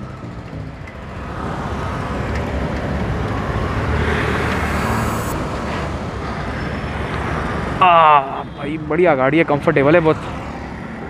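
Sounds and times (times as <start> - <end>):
motorcycle engine running: 0.0 - 4.8
road and wind noise: 0.0 - 11.0.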